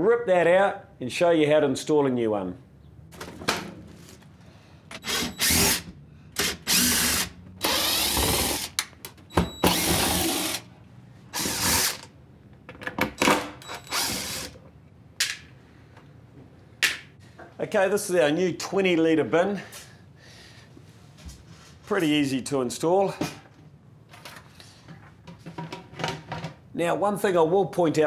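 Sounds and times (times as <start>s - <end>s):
cordless drill bursts: 4.9s - 8.8s, 9.4s - 10.7s, 11.3s - 12.1s, 13.7s - 14.6s.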